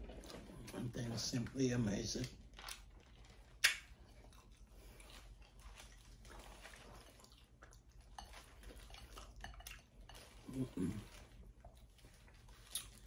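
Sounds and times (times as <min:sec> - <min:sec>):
person chewing: 0:02.4 - 0:13.0
seafood shells cracking by hand: 0:03.6 - 0:03.9.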